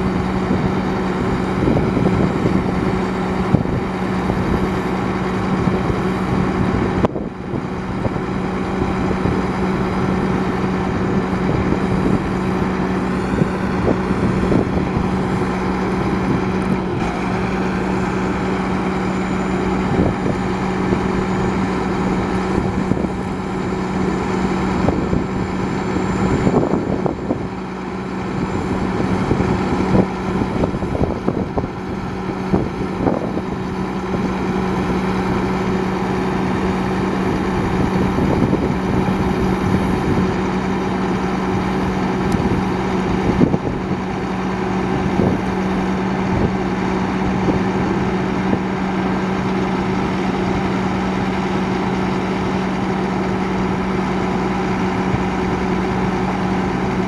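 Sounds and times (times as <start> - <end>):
truck engine humming: 0.0 - 57.0.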